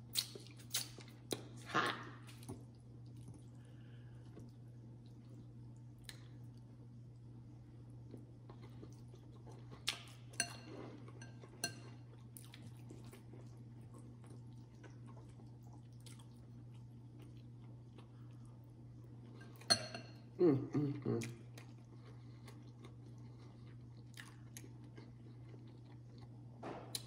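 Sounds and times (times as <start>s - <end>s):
steady low hum: 0.0s - 27.0s
faint chewing: 0.1s - 19.7s, 21.1s - 27.0s
fork clinking glass bowl: 10.4s - 12.0s, 19.4s - 20.2s.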